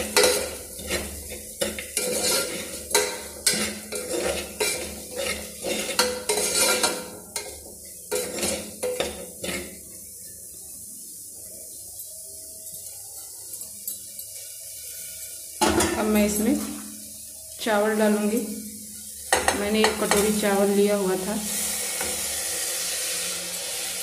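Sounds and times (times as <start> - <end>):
spoon scraping metal pot: 0.0 - 9.8
light sizzle: 0.0 - 24.0.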